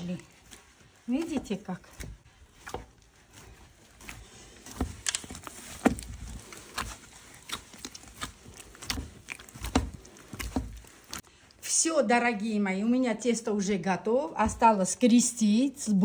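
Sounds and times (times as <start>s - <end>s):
hands kneading dough in metal basin: 0.0s - 16.0s.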